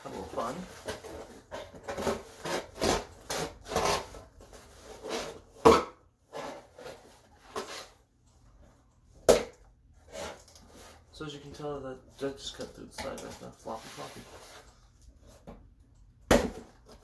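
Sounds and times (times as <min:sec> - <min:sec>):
knife sawing cardboard: 0:00.9 - 0:04.2.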